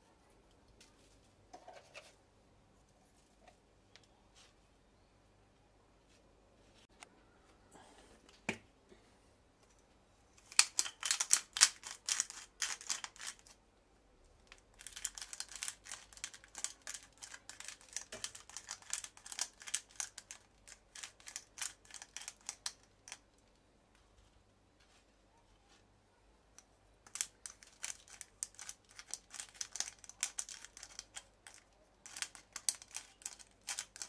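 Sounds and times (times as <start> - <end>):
pepper mill grinding: 10.5 - 13.5, 14.5 - 23.2, 27.0 - 34.0.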